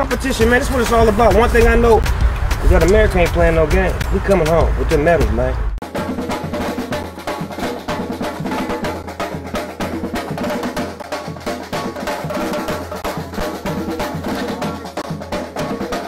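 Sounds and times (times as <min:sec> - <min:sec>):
street percussion band playing: 0:00.0 - 0:16.0.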